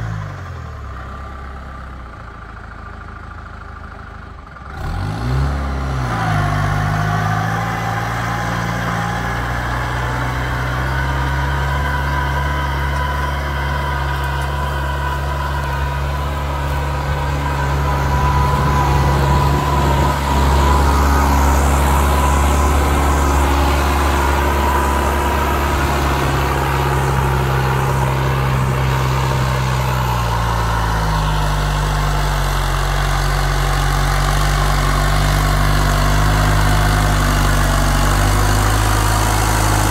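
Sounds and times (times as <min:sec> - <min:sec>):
tractor diesel engine under load: 0:00.0 - 0:39.9
steady whine: 0:07.1 - 0:33.5.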